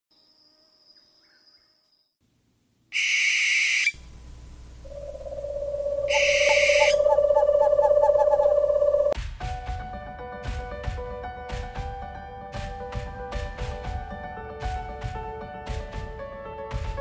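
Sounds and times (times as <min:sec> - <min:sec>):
owl screeches: 0:02.9 - 0:04.0, 0:04.9 - 0:09.2
steady low tone: 0:04.0 - 0:09.2.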